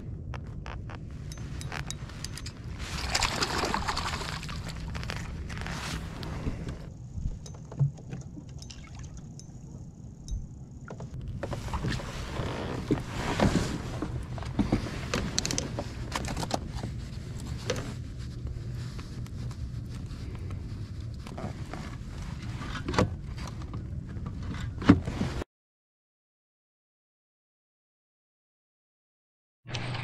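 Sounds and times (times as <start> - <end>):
handling knocks and clicks: 0.2 - 2.6
water splashing and sloshing: 1.2 - 10.2.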